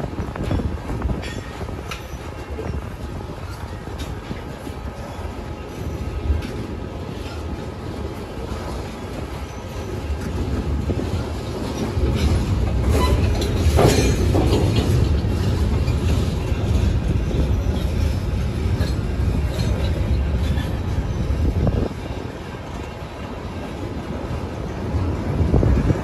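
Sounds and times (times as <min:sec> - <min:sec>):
train wheels rumbling on rails: 0:00.0 - 0:26.0
wheels clattering over rail joints: 0:00.0 - 0:26.0
metallic wheel squeal: 0:11.7 - 0:14.2.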